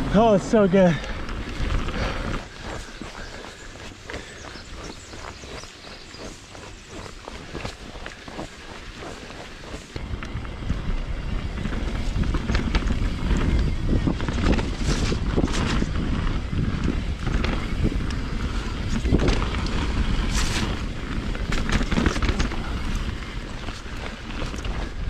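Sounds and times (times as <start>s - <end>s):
bike rattling: 0.0s - 25.0s
tyres rumbling on trail: 0.0s - 25.0s
wind rushing over microphone: 0.0s - 25.0s
bike knocking on roots and rocks: 6.8s - 25.0s.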